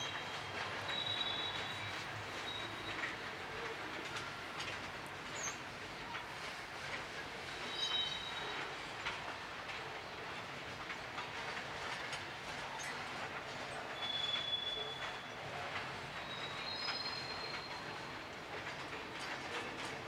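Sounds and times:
wheels clicking over rail joints: 0.0s - 20.0s.

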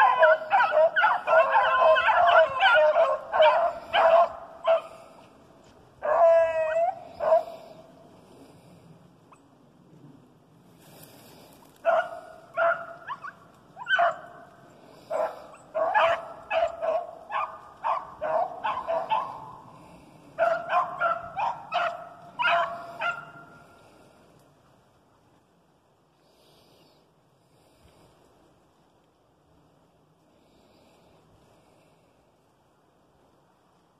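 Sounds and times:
hounds barking: 0.0s - 5.0s, 6.0s - 7.8s, 11.8s - 19.8s, 20.4s - 23.6s.

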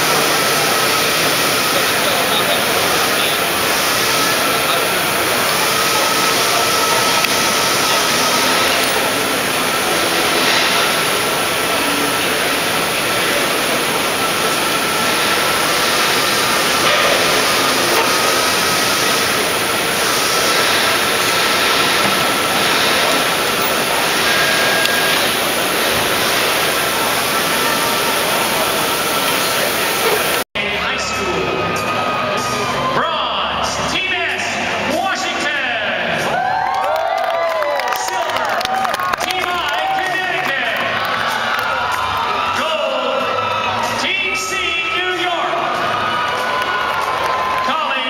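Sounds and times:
thin steady whine: 0.0s - 35.0s
machinery running: 0.0s - 48.0s.

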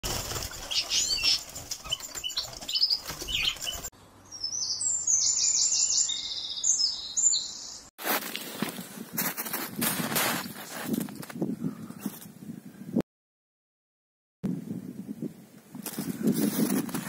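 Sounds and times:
birds fluttering against cage bars: 0.0s - 3.9s
birdsong rapid high notes: 0.0s - 7.9s.

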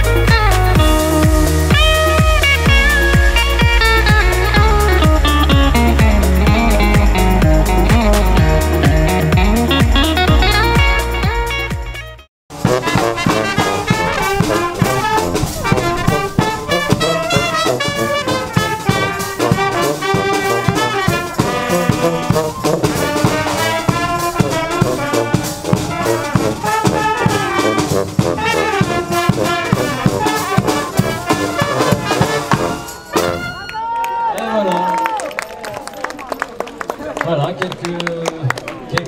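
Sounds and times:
bass drum beat: 0.0s - 33.6s
saxophones: 0.0s - 34.0s
trumpets: 0.0s - 34.1s
snare drum: 12.5s - 33.6s.

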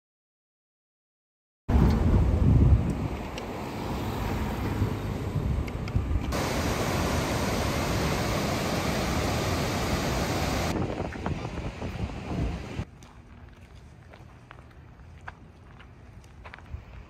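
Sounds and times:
wind rumbling on microphone: 1.7s - 17.0s
steady rushing hiss: 6.3s - 12.8s.

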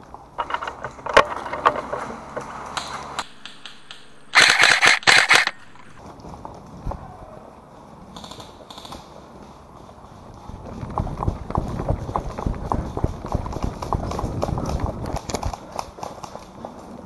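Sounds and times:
running footsteps on dirt path: 0.4s - 7.0s, 9.2s - 17.0s.

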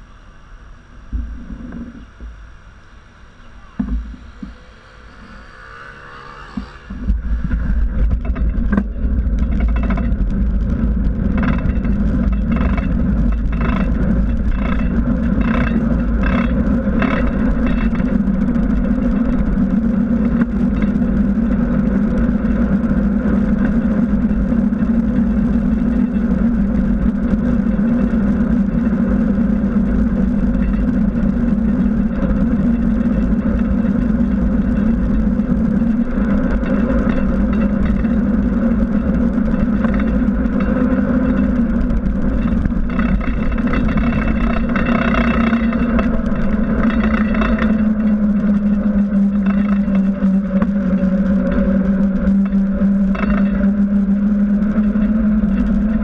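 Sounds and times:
wind and road rumble: 0.0s - 56.0s
regular pulses: 1.2s - 10.4s.

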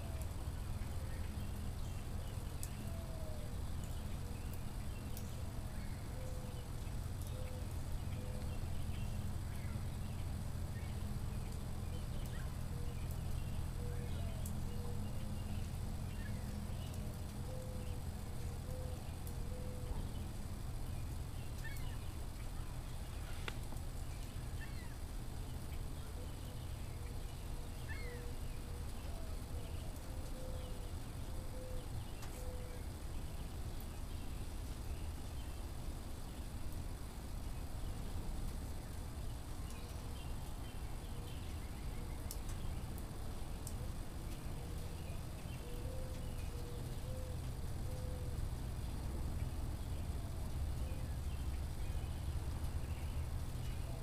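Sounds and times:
birds chirping: 0.0s - 36.8s, 37.4s - 54.0s
wood fire crackling in stove: 3.4s - 53.9s
faint bird chirps: 43.6s - 54.0s.

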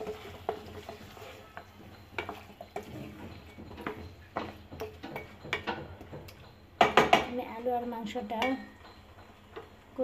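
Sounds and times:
wooden spatula scraping a pot: 0.0s - 6.1s.

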